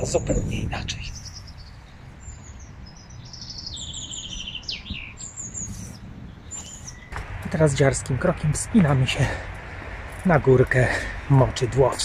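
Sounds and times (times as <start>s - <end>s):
songbirds chirping and whistling: 0.0s - 12.0s
bird trill: 1.0s - 8.6s
low steady rumble: 7.0s - 12.0s.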